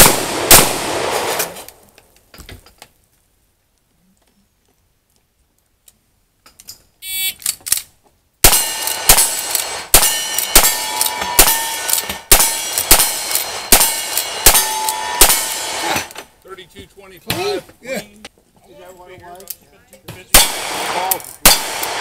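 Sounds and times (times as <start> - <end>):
rifle shots: 0.0 - 1.6, 8.4 - 16.2, 20.3 - 22.0
short beep: 7.0 - 7.4
steel targets ringing: 8.5 - 16.1.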